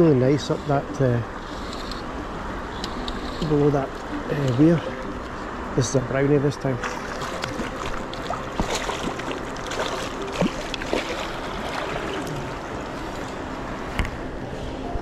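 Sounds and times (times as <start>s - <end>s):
river water rushing: 0.0s - 15.0s
sharp knocks or splashes: 6.8s - 12.4s.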